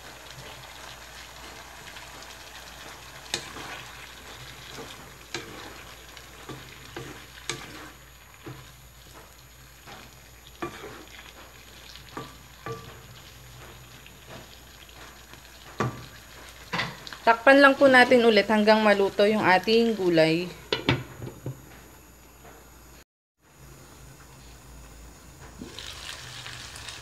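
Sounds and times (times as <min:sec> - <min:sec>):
low steady sizzle: 0:00.0 - 0:27.0
spatula knocking and scraping pan: 0:01.4 - 0:18.4, 0:20.7 - 0:21.7.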